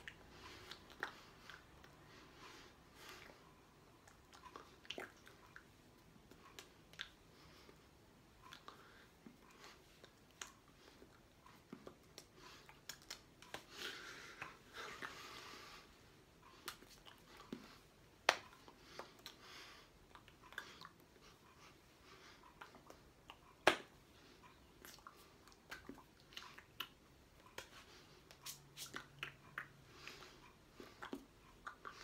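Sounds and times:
hands slapping together: 16.6 - 19.4, 23.6 - 23.9.

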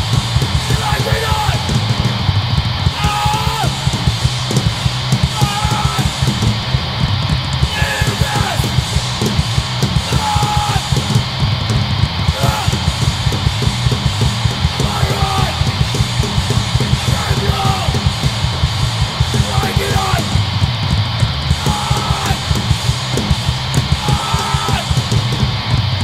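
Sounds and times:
bass: 0.0 - 26.0
distorted guitars: 0.0 - 26.0
fast drums: 0.0 - 26.0
shouted vocals: 0.6 - 1.8, 2.9 - 4.0, 5.2 - 6.4, 7.6 - 8.9, 10.0 - 11.0, 12.2 - 13.1, 14.8 - 15.9, 16.9 - 18.2, 19.3 - 20.4, 21.4 - 22.7, 23.8 - 25.2.

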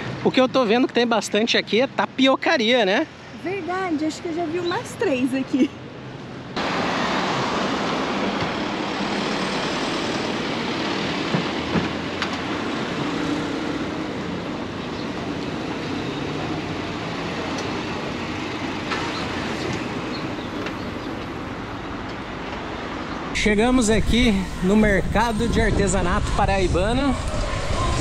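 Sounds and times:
road traffic: 0.0 - 28.0.

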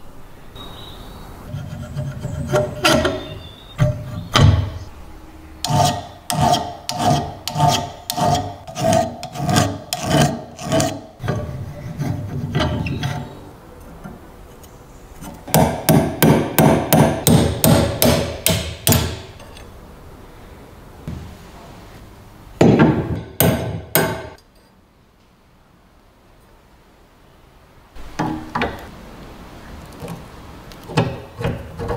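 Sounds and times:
steel tool scraping cast iron: 1.5 - 4.8, 5.6 - 14.1, 18.9 - 19.7.

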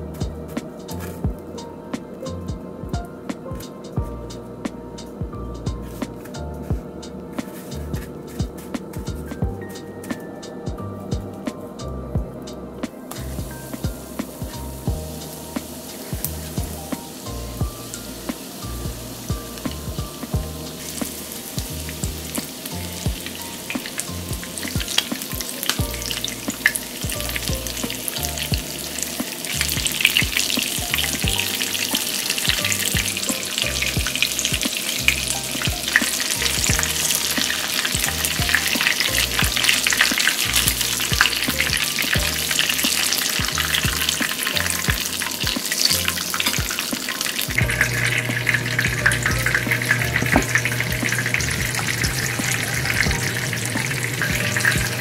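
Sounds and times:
shrimp sizzling in frying oil: 13.2 - 55.0.

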